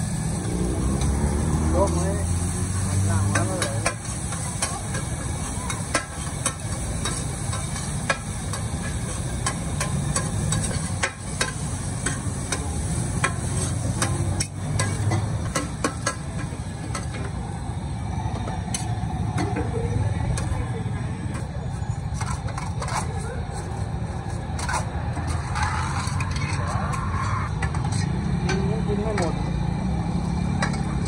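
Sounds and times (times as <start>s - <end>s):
noodles sizzling on a pan: 0.0s - 28.2s
metal spatula scraping and clinking: 3.3s - 16.2s, 21.3s - 28.1s.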